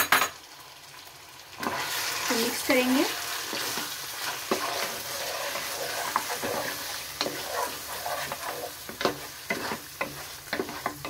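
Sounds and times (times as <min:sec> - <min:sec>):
meat sizzling in a pan: 0:00.0 - 0:11.0
spatula scraping a pan: 0:01.6 - 0:02.3, 0:03.1 - 0:11.0.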